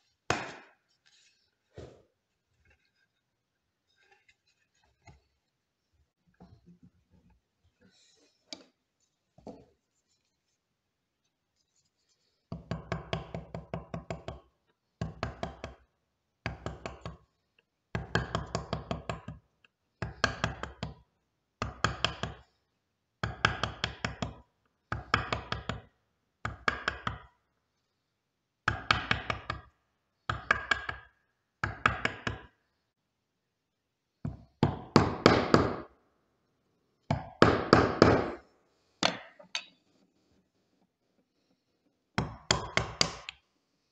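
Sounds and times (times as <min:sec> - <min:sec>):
chisel being struck: 0:00.3 - 0:00.8, 0:42.2 - 0:43.4.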